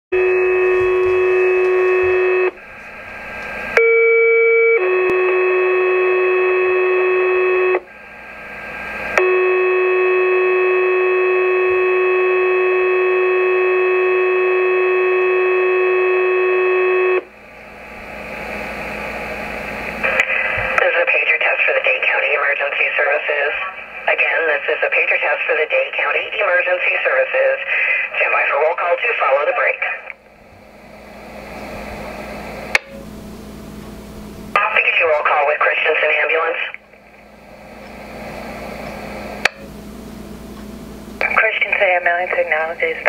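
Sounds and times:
pager test tones: 0:00.2 - 0:02.6
radio static hiss: 0:00.5 - 0:03.8, 0:07.8 - 0:09.2, 0:17.4 - 0:33.0, 0:34.5 - 0:39.7, 0:41.2 - 0:43.0.

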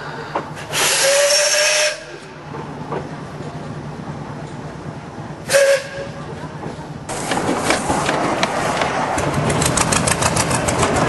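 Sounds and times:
loud hiss of steam: 0:00.0 - 0:02.3
sharp locomotive exhaust beats: 0:00.0 - 0:02.7, 0:05.4 - 0:11.0
steam locomotive whistle toot: 0:00.7 - 0:02.2, 0:05.5 - 0:06.2.

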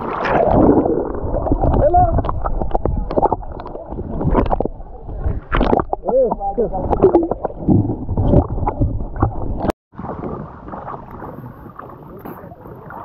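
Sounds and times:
water washing around camera: 0:00.0 - 0:13.0
underwater clicks: 0:00.4 - 0:04.7, 0:05.3 - 0:09.7
muffled underwater noise: 0:10.0 - 0:13.0.

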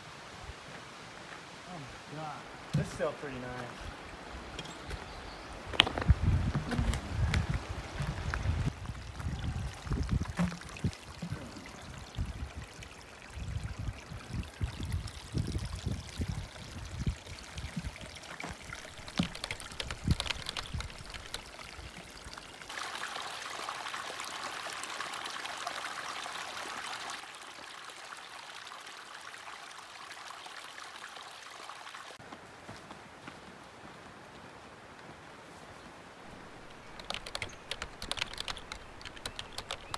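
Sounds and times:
creek running over stones: 0:00.0 - 0:33.2, 0:36.1 - 0:39.9
rustling: 0:18.5 - 0:21.6.

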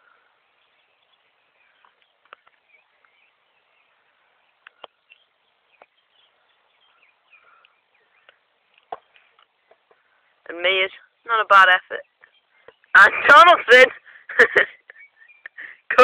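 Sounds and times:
distant bird chirps: 0:00.0 - 0:16.0
faint sharp clicks: 0:01.8 - 0:03.2, 0:04.6 - 0:05.9, 0:07.6 - 0:09.5.

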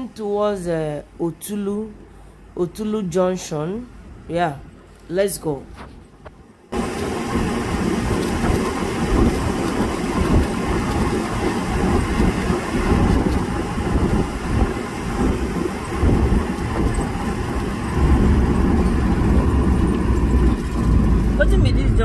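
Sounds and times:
tyre and wind noise in car: 0:05.7 - 0:22.0.

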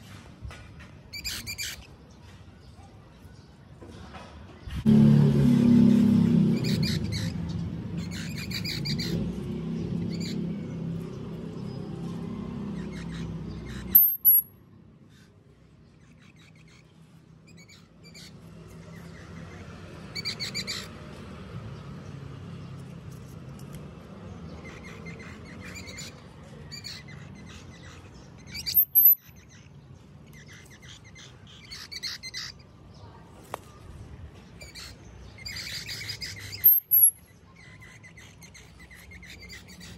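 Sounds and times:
small animals chirping: 0:06.5 - 0:11.1, 0:12.7 - 0:21.0, 0:24.4 - 0:32.8, 0:34.5 - 0:39.9
high falling squeaks: 0:13.9 - 0:14.6, 0:28.5 - 0:29.2, 0:36.5 - 0:37.2.

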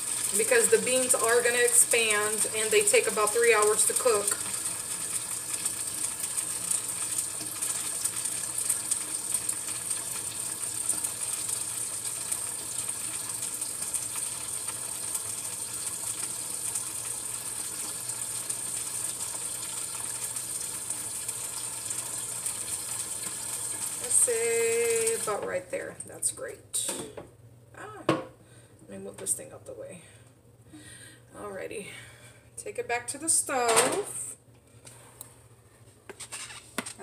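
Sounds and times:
water running into pot: 0:00.0 - 0:25.6.

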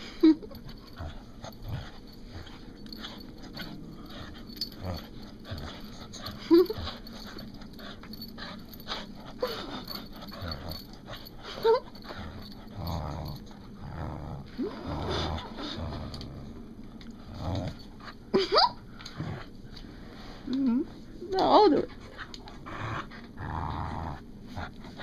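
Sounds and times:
dog growling: 0:00.8 - 0:17.9, 0:22.5 - 0:24.8
dog whining: 0:03.0 - 0:10.8.

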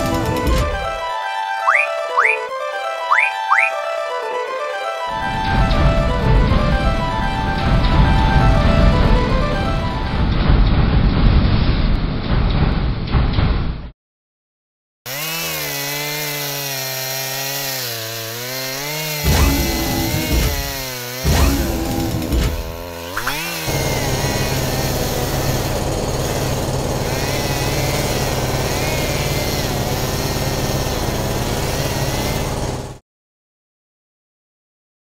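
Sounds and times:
power drill whirring: 0:19.3 - 0:33.0.

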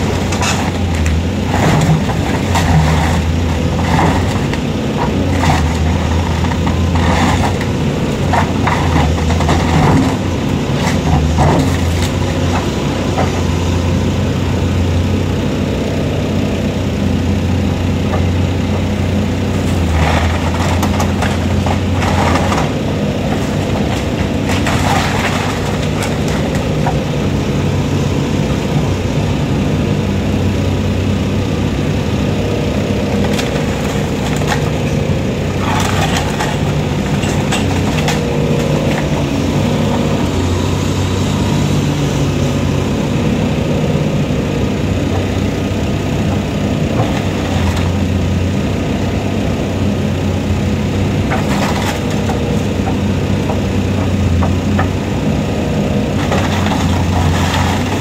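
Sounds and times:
building material cracking and crushing: 0:00.0 - 0:13.4, 0:19.4 - 0:27.0, 0:33.0 - 0:40.3, 0:51.2 - 0:55.0, 0:56.0 - 0:58.0
diesel demolition machine running: 0:00.0 - 0:58.0.

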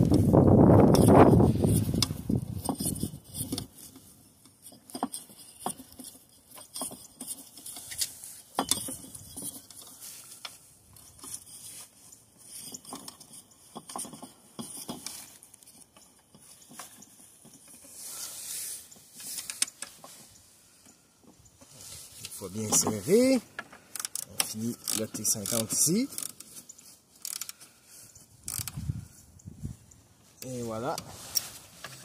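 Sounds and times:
brief rustle: 0:24.0 - 0:32.0.

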